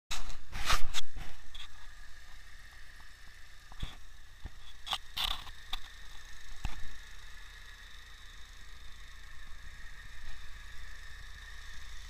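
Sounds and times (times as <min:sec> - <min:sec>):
short clicks and scrapes: 0:00.1 - 0:02.0, 0:03.8 - 0:06.0
car engine idling: 0:01.3 - 0:12.0.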